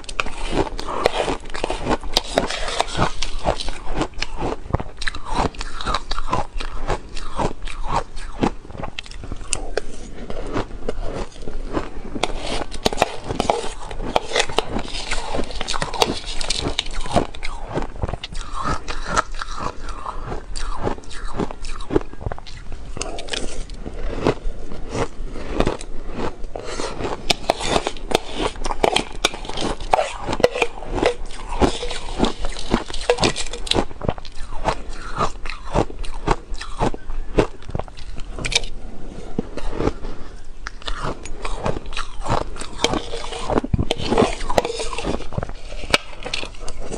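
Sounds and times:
crunching and chewing ice: 0:00.0 - 0:46.9
metal spoon scraping glass bowl: 0:00.1 - 0:04.1, 0:12.2 - 0:17.5, 0:27.3 - 0:36.8, 0:38.0 - 0:38.8, 0:40.8 - 0:46.9.

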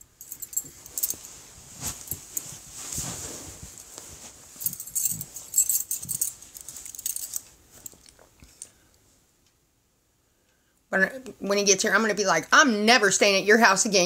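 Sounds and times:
rustling handling noise: 0:00.0 - 0:08.9.

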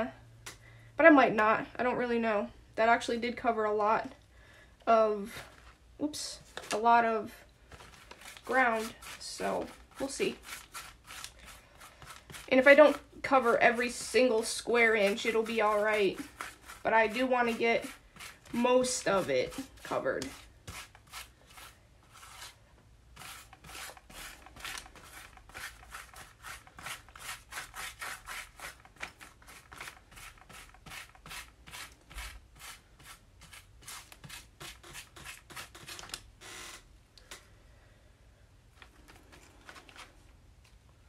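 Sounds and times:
paintbrush strokes on paper: 0:07.7 - 0:22.6.

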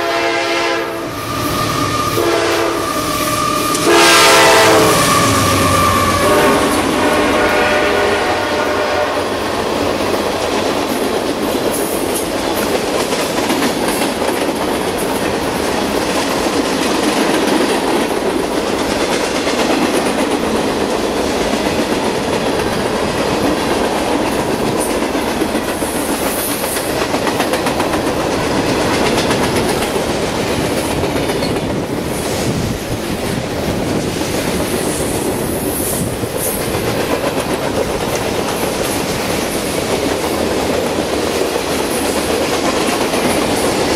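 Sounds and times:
freight train wheels rumbling: 0:00.0 - 0:43.9.

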